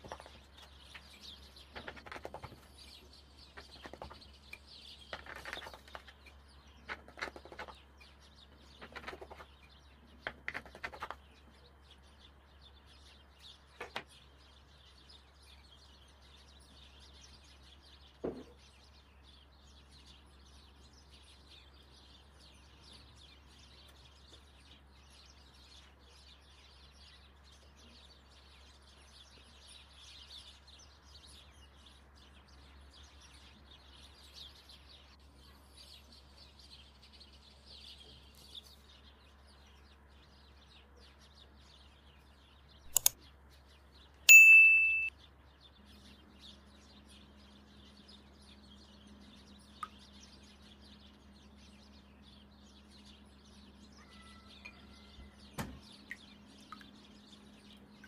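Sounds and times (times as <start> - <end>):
faint bird chirps: 0.0 - 58.0
sharp click: 42.9 - 43.2.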